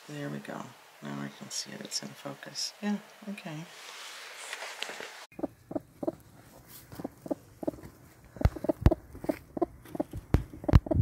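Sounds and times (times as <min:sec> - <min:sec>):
hen clucking: 0:05.3 - 0:11.0.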